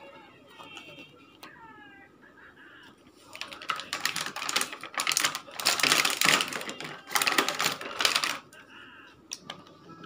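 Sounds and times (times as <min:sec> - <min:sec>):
plastic packaging crinkling: 0:03.3 - 0:08.6.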